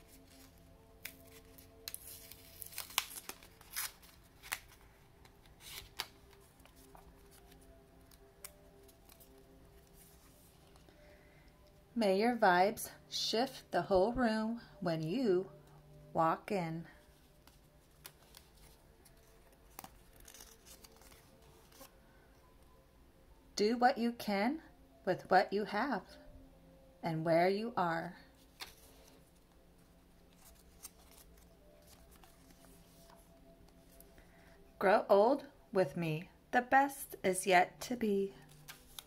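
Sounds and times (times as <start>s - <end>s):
paper crinkling: 0.0s - 10.9s, 17.1s - 21.9s, 28.4s - 29.5s, 30.2s - 34.1s, 38.4s - 39.0s
faint background music: 0.0s - 39.0s.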